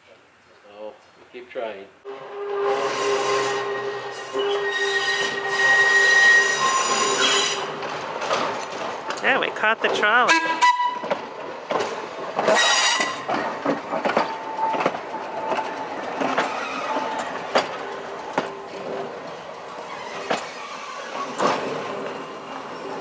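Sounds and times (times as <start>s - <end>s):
train car rolling past: 2.1s - 23.0s
wheels clicking over rail joints: 6.9s - 23.0s.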